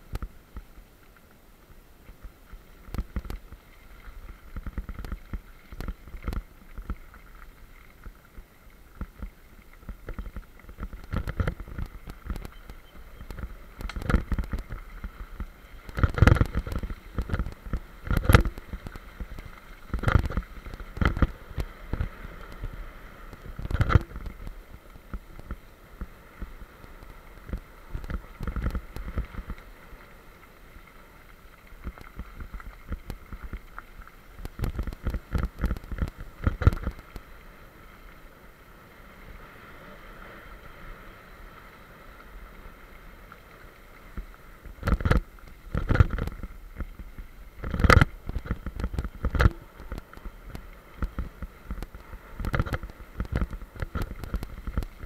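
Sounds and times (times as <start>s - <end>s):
bike tyres crunching on gravel: 2.2s - 37.2s.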